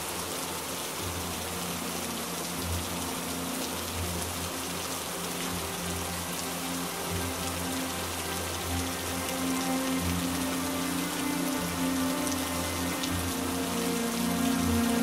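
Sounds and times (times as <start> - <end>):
heavy rain: 0.0 - 15.0
soft low music notes: 0.0 - 15.0.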